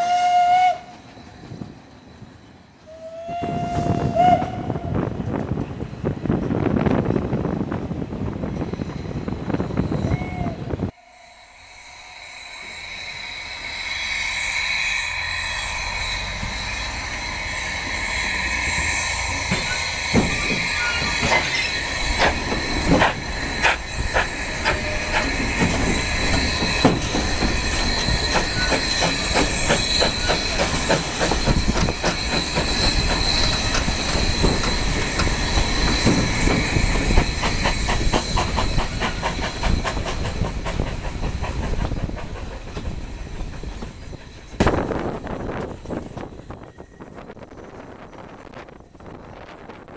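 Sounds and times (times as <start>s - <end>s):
train running rumble: 0.0s - 49.9s
wheel flanges squealing: 11.4s - 48.8s
wheels clicking over rail joints: 19.3s - 46.4s.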